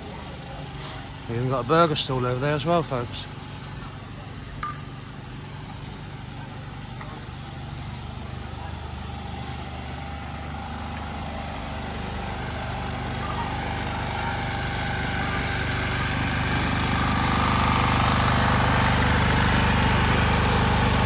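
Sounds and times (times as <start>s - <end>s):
petrol generator running: 0.0s - 21.0s.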